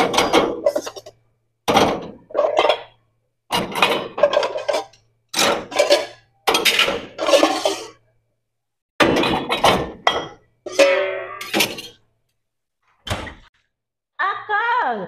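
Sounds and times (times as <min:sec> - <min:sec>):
dishes and utensils clattering: 0:00.0 - 0:08.0, 0:09.0 - 0:12.0.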